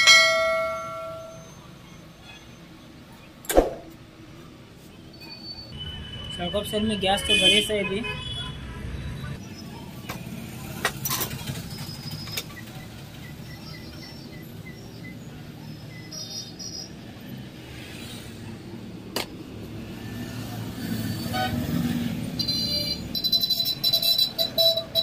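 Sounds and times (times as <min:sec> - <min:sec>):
road traffic rumble: 0:00.0 - 0:25.0
sharp knock: 0:03.5 - 0:03.9
car horn: 0:05.8 - 0:08.7, 0:21.2 - 0:25.0.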